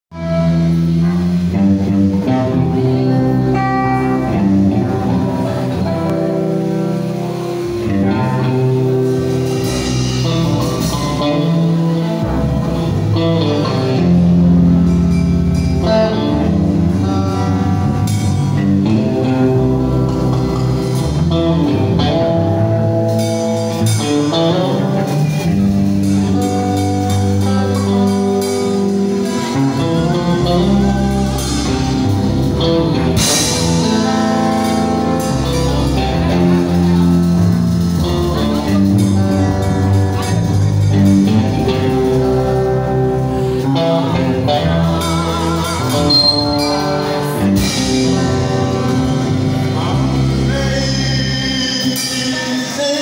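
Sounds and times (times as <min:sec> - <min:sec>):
bass line: 0:00.1 - 0:53.0
drums: 0:00.1 - 0:53.0
electric guitar melody: 0:00.1 - 0:53.0.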